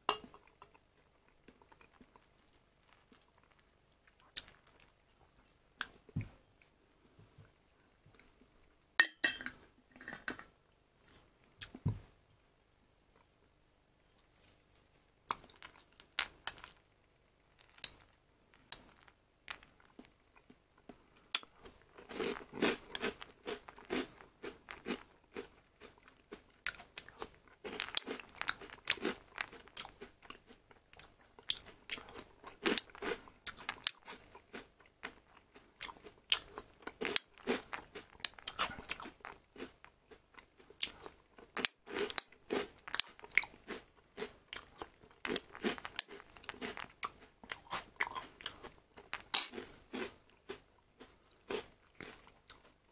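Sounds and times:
person chewing crunchy cereal: 0:00.1 - 0:06.1, 0:15.1 - 0:52.9.

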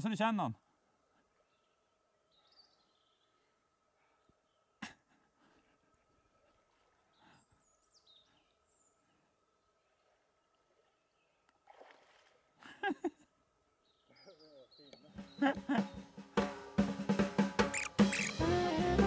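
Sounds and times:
faint creek ambience: 0:00.0 - 0:19.0
high falling bird chirps: 0:17.6 - 0:18.4.

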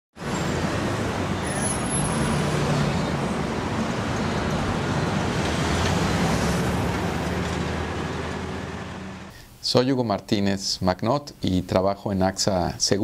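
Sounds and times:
road traffic rumble: 0:00.2 - 0:09.3.

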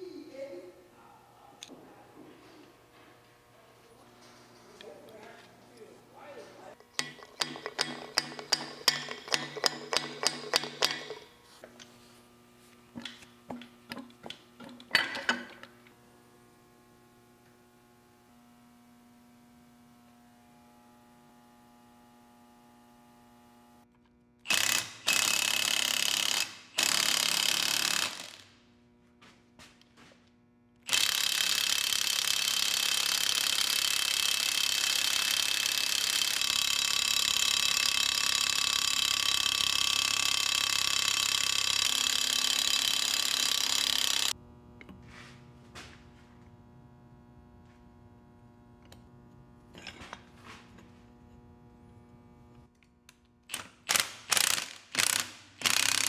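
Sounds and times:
impact wrench hammering: 0:06.8 - 0:11.4, 0:13.0 - 0:15.7, 0:24.5 - 0:28.5, 0:30.9 - 0:44.4, 0:53.5 - 0:56.0.

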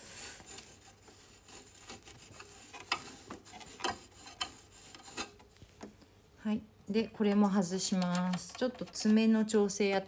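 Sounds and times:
cloth rubbing on metal: 0:00.0 - 0:05.8.

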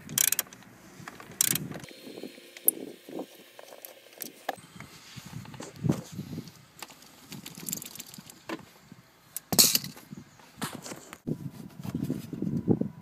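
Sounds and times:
metal parts clicking and knocking: 0:00.0 - 0:01.8, 0:06.8 - 0:08.6, 0:09.4 - 0:10.0.

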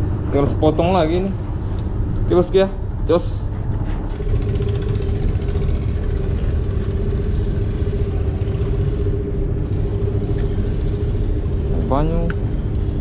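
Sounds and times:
boat engine idling: 0:00.0 - 0:13.0.

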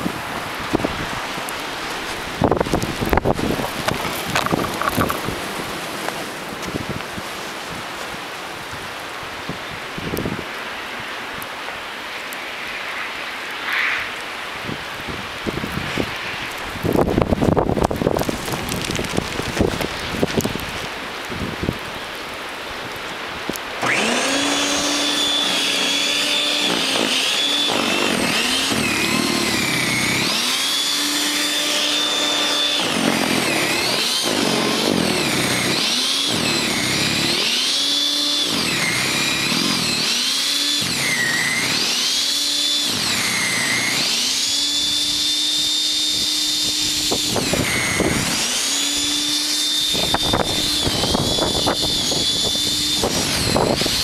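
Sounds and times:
snow thrower motor whine: 0:00.0 - 0:10.4, 0:23.5 - 0:54.0.

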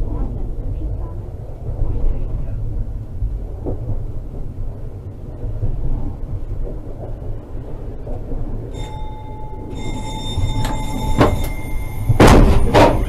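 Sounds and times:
tram rumbling on rails: 0:00.0 - 0:13.0
steady high tone: 0:08.7 - 0:13.0.

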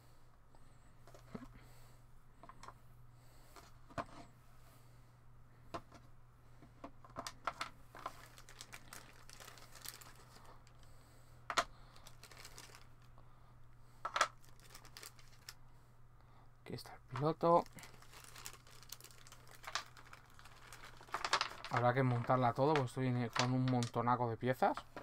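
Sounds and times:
faint steady low hum: 0:00.0 - 0:25.0
plastic packaging crinkling: 0:08.0 - 0:10.8, 0:12.0 - 0:13.1, 0:14.2 - 0:15.6, 0:17.5 - 0:23.9.

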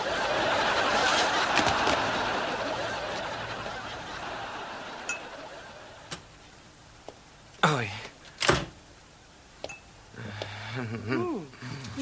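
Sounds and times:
studio audience laughing: 0:00.0 - 0:06.2.

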